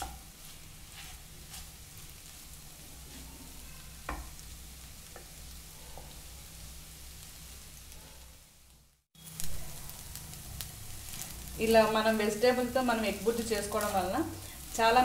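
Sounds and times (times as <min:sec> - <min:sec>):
wooden spatula scraping a pan: 0:00.0 - 0:04.4
food sizzling: 0:00.0 - 0:15.0.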